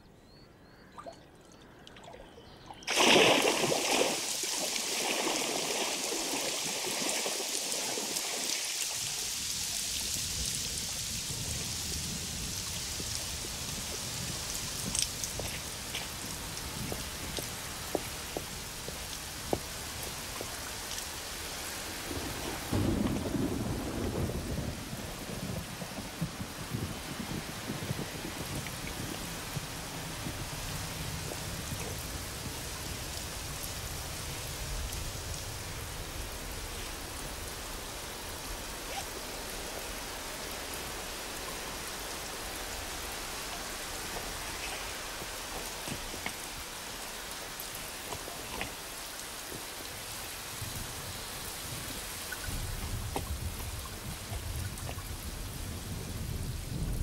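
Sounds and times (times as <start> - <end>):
steady rain falling: 2.8 - 57.0
low thunder rumbling: 21.9 - 38.7, 50.6 - 57.0.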